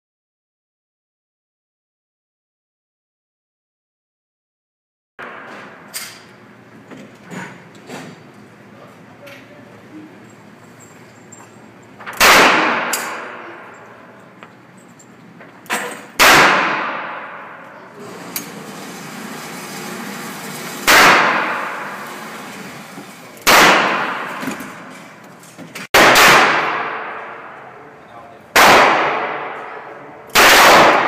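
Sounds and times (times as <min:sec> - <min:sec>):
handgun shot: 0:12.1 - 0:13.6, 0:15.8 - 0:17.3, 0:20.9 - 0:21.8, 0:23.4 - 0:24.6, 0:26.0 - 0:27.2, 0:28.6 - 0:29.7, 0:30.3 - 0:31.0
revolver shots echoing: 0:12.2 - 0:14.1, 0:16.1 - 0:17.6, 0:23.4 - 0:24.9.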